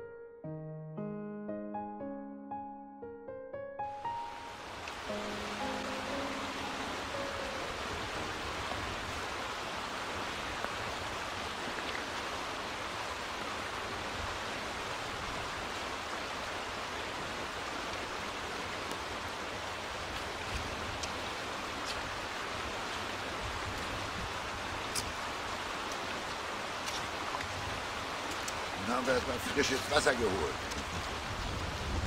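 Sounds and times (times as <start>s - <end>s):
river rushing over stones: 4.0s - 32.0s
footsteps on stony bank: 25.9s - 27.5s.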